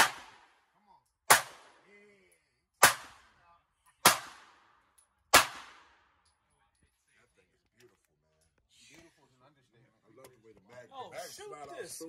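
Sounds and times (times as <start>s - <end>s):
pistol shots with echo: 0.0s - 0.7s, 1.3s - 1.8s, 2.8s - 3.4s, 4.0s - 6.1s.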